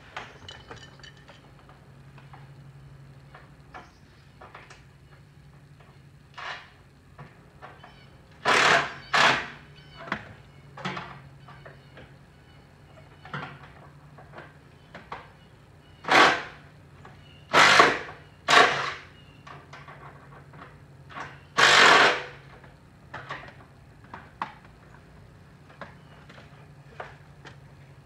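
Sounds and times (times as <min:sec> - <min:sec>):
loud tool bursts: 0:08.4 - 0:09.6, 0:16.0 - 0:16.6, 0:17.5 - 0:19.1, 0:21.5 - 0:22.4.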